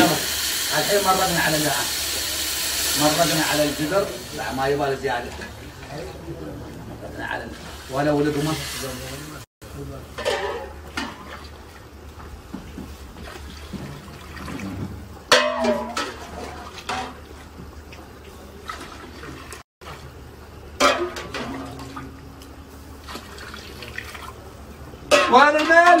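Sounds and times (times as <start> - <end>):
water pouring into a pot: 0.0 - 5.8, 23.0 - 24.4.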